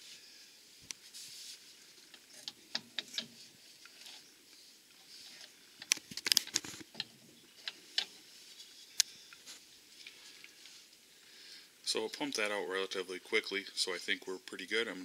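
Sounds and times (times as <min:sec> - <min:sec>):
plastic bottle clicking and crinkling: 0:05.8 - 0:07.1.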